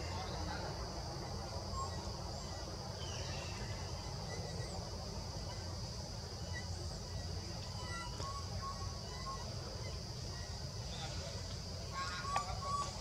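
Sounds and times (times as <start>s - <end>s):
faint bird chirps: 6.3s - 13.0s.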